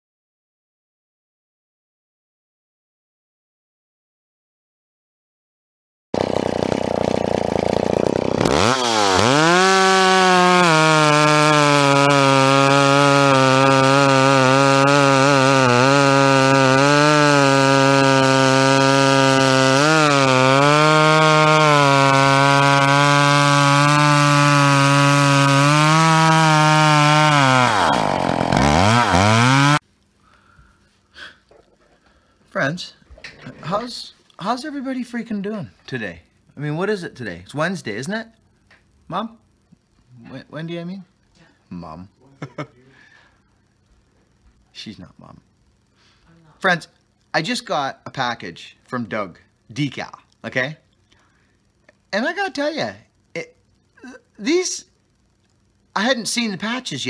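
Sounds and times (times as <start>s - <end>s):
chainsaw cutting a log: 6.2s - 29.8s.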